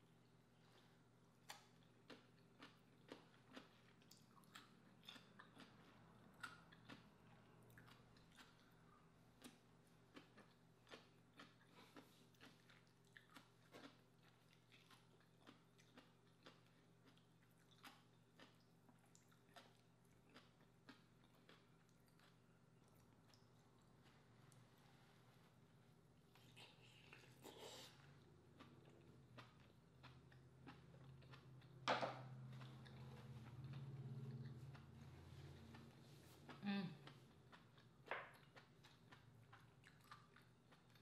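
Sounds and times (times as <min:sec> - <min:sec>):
faint steady hum: 0:00.0 - 0:41.0
mouth chewing clicks and smacks: 0:01.4 - 0:24.2, 0:35.7 - 0:41.0.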